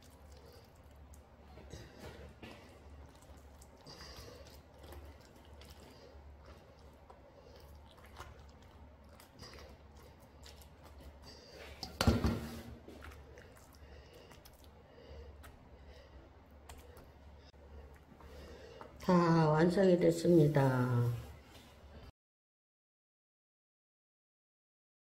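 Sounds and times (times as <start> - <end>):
wet squishing of cabbage: 0.0 - 22.0.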